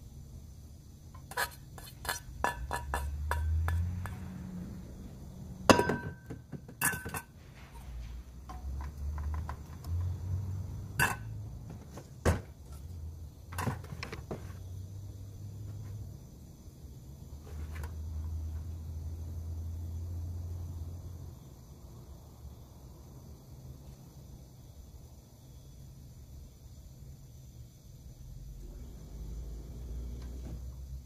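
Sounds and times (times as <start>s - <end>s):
metal utensil tapping metal bowl: 1.2s - 4.2s, 11.0s - 11.3s.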